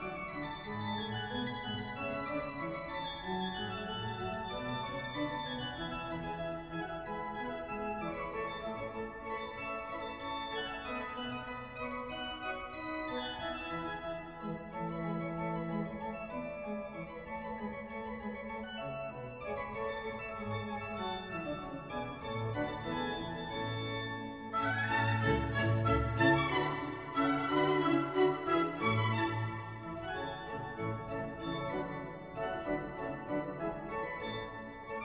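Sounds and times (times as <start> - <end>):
instrumental background music: 18.2 - 35.0.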